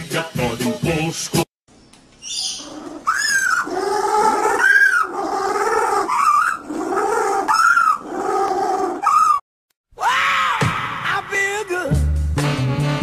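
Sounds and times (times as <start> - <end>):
animal calling: 2.2 - 9.4.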